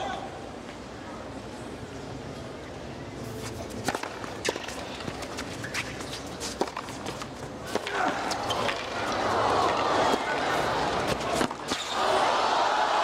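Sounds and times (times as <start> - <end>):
racket hitting tennis ball: 3.6 - 12.0
crowd murmur: 7.0 - 13.0.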